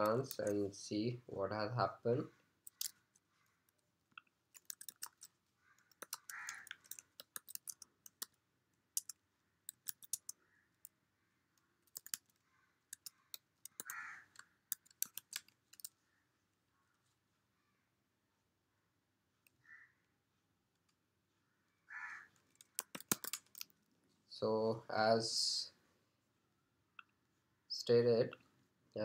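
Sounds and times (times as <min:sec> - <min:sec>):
keyboard typing: 0:00.0 - 0:00.6, 0:02.6 - 0:03.0, 0:04.1 - 0:11.0, 0:11.8 - 0:16.0, 0:22.4 - 0:23.8.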